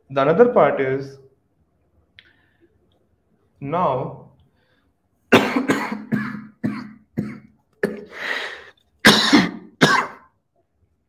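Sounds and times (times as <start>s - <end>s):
man coughing: 5.3s - 8.2s, 9.0s - 10.3s.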